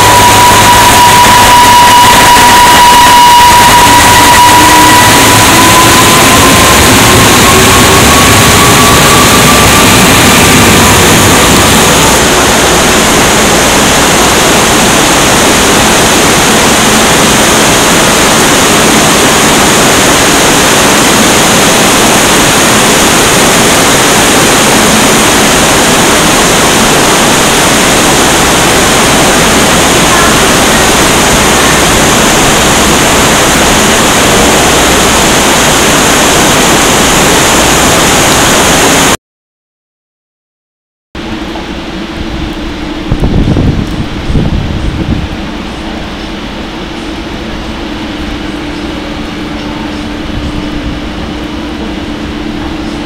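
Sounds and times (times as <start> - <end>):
heavy rain pouring: 0.0 - 39.2
passing train whine: 0.0 - 39.2, 41.2 - 53.0.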